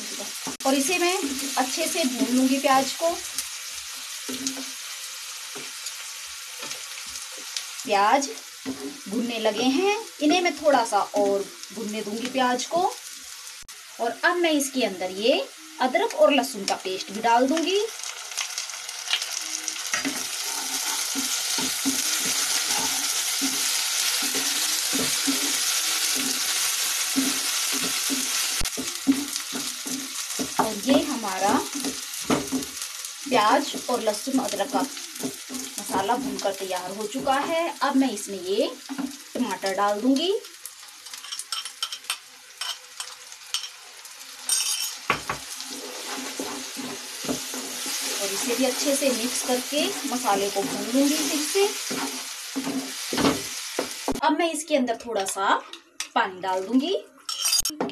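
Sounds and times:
onions sizzling in hot oil: 0:00.0 - 0:55.6
spatula scraping a pan: 0:19.8 - 0:32.8, 0:44.5 - 0:53.6.

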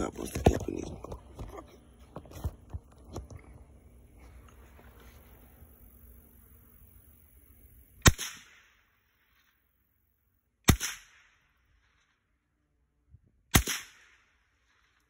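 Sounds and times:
rifle shots with echo: 0:08.0 - 0:09.2, 0:10.6 - 0:11.6, 0:13.5 - 0:14.9.

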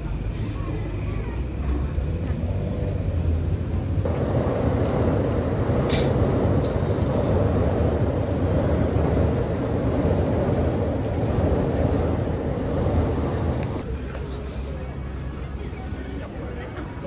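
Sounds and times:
rumble of passing traffic: 0:00.0 - 0:17.0.

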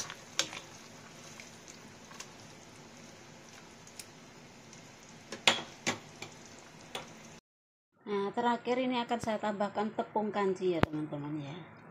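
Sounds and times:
broth bubbling in a wok: 0:00.0 - 0:07.4.

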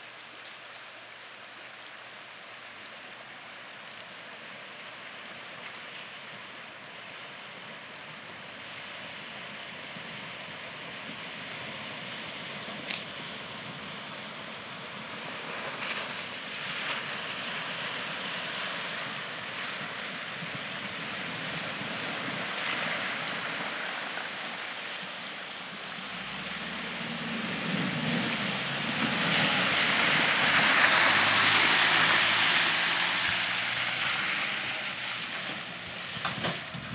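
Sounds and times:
rushing river water: 0:00.0 - 0:36.9
wheels splashing through water: 0:02.5 - 0:36.9
vehicle engine: 0:26.1 - 0:36.9.

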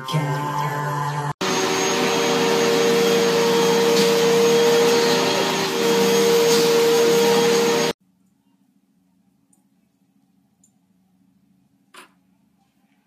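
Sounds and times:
vacuum cleaner motor drone: 0:01.4 - 0:08.0.

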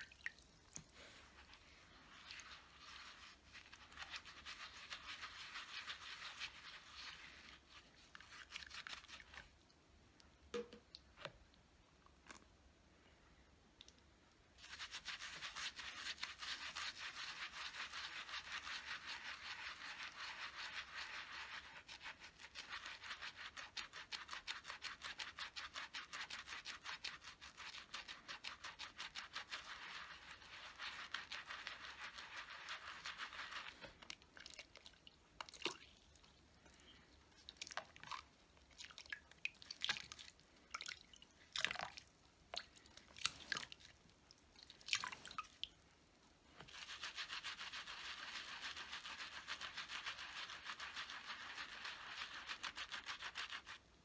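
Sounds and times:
water drips and splashes: 0:00.0 - 0:01.0, 0:37.4 - 0:45.8
brush scrubbing silicone pad: 0:00.7 - 0:09.6, 0:14.6 - 0:36.3, 0:46.6 - 0:54.0.

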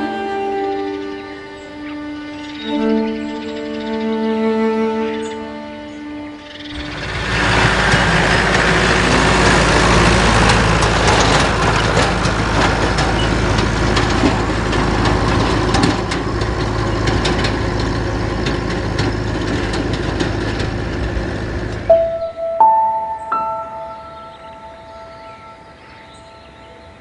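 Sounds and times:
tractor diesel engine running: 0:00.0 - 0:05.6, 0:06.3 - 0:26.5
light clicks and rattles: 0:09.8 - 0:21.9.

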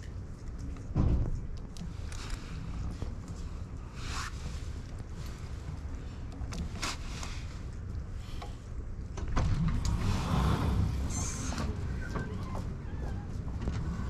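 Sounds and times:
sliding door motor hum: 0:09.2 - 0:14.0.

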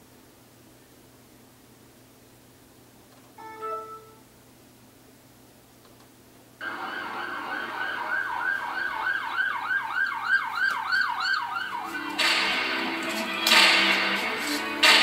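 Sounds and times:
siren effect wailing: 0:06.6 - 0:12.2
sharp drum hits: 0:12.2 - 0:15.0.

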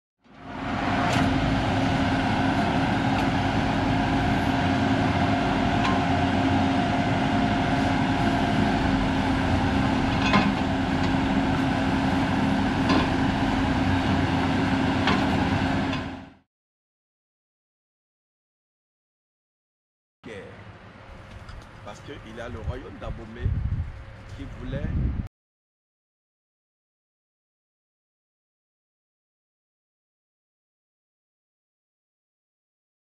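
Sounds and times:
drilling rig and compressor humming: 0:00.3 - 0:16.4.

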